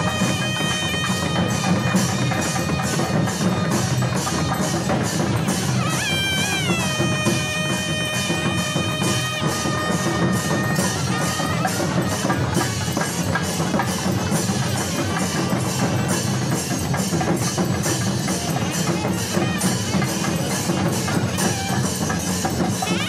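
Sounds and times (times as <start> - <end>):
held horn-like tone: 0.0 - 3.1, 5.5 - 13.6
drums and struck metal: 0.0 - 23.0.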